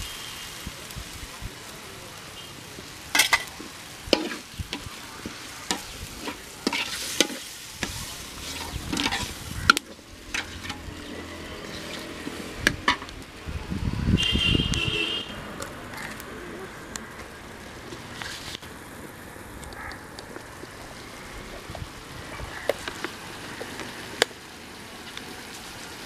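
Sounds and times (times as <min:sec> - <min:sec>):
curry sizzling: 0:00.0 - 0:26.0
ladle scraping metal pot: 0:05.7 - 0:10.9.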